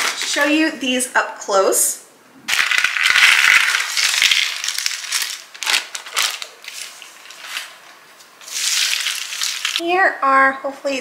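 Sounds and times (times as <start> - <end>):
puzzle pieces clattering onto table: 2.5 - 5.4.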